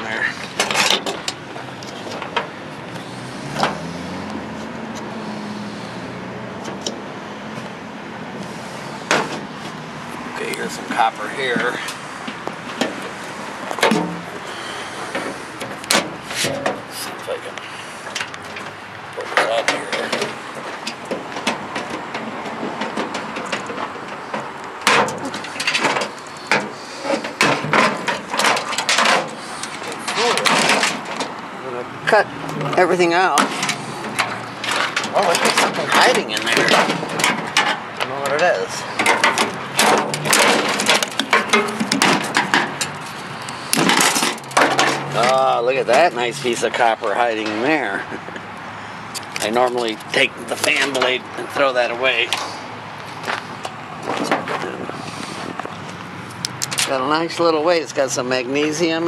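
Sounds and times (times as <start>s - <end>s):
sheet metal clicks and rattles: 0.4s - 2.5s, 18.1s - 31.4s, 33.3s - 46.8s
sharp knocks: 13.7s - 14.4s.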